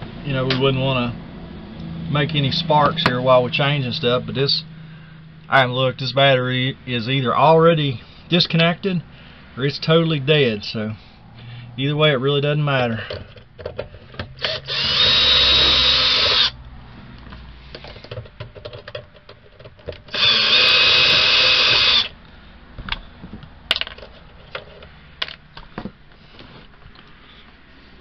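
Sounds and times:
cordless drill motor whine: 0:14.4 - 0:16.6, 0:20.1 - 0:22.2
handling clicks and rattles: 0:17.2 - 0:20.1, 0:22.9 - 0:26.0.

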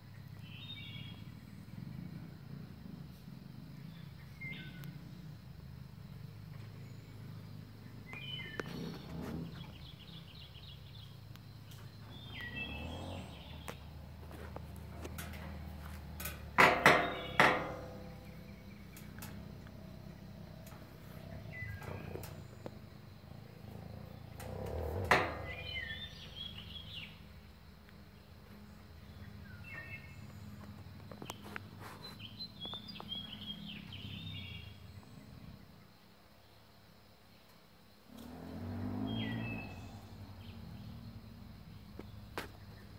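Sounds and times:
songbirds chirping: 0:00.0 - 0:42.9
low background rumble: 0:09.0 - 0:31.4.

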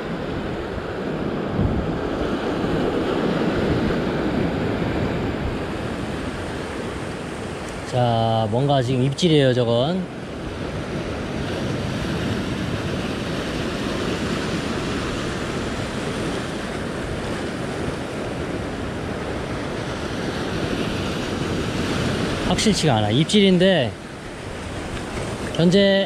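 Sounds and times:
wind buffeting microphone: 0:00.0 - 0:08.6
ocean surf breaking on rocks: 0:00.0 - 0:26.0.

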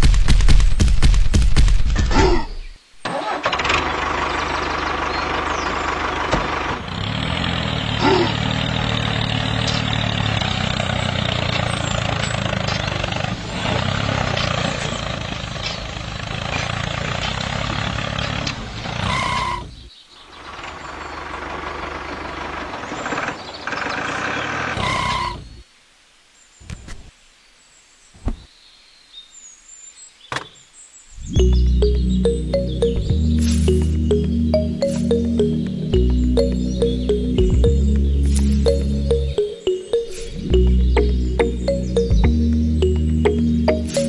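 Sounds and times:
tractor engine running: 0:03.1 - 0:19.4, 0:20.3 - 0:24.8, 0:31.4 - 0:44.0.

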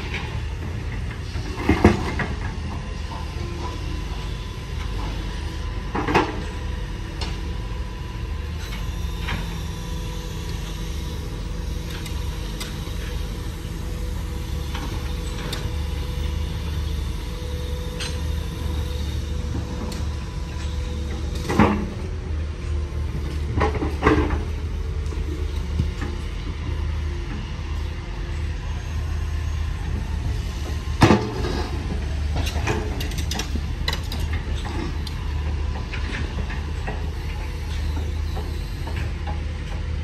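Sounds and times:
diesel machinery rumbling: 0:00.0 - 0:40.0.

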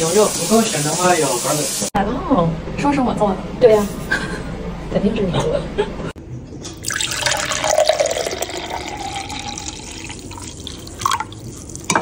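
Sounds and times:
liquid pouring into glass: 0:06.8 - 0:12.0.

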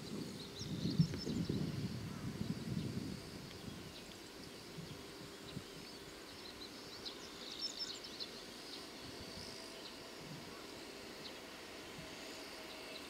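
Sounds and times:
steady high hiss: 0:00.0 - 0:13.0
bird chirping: 0:03.6 - 0:09.0.

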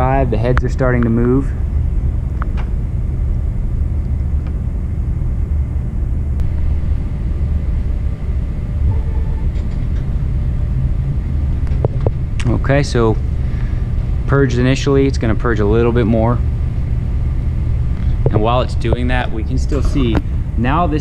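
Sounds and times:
faint motor tone: 0:06.4 - 0:16.6
three d printer humming: 0:06.4 - 0:21.0.

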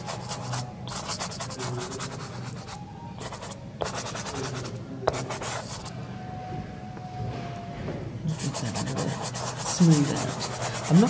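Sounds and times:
pastel scratching on paper: 0:00.0 - 0:05.9, 0:08.3 - 0:11.0.

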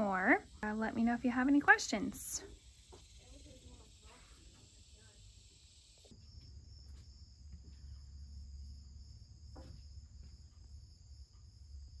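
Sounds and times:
insect trilling: 0:00.0 - 0:06.4.

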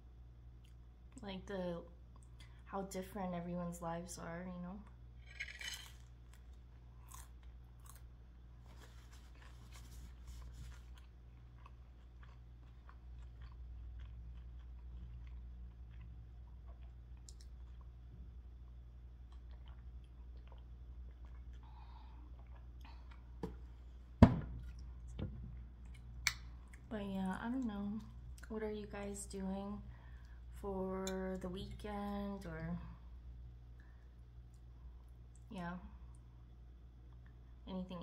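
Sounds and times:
chewing crusty bread: 0:04.8 - 0:23.7.

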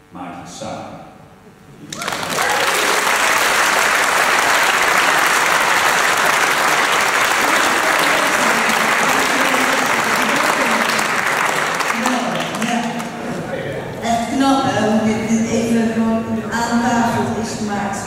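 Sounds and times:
audience applauding: 0:01.9 - 0:13.4.

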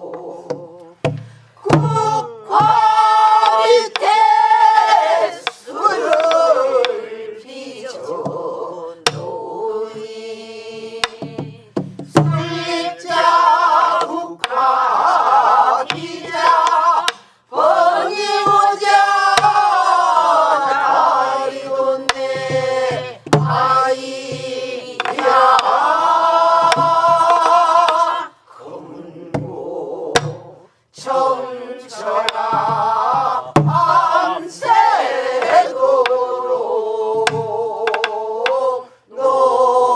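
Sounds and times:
group singing folk song: 0:00.0 - 0:39.9
barrel drum strokes: 0:21.6 - 0:28.1, 0:32.2 - 0:34.7.

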